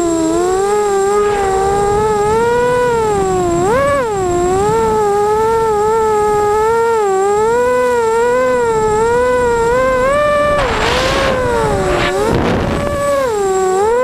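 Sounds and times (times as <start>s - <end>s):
quadcopter motors whining: 0.0s - 14.0s.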